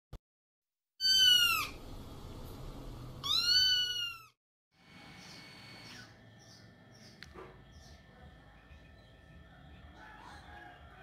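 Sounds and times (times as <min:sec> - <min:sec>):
kitten meowing: 0:01.0 - 0:01.8, 0:03.2 - 0:04.4.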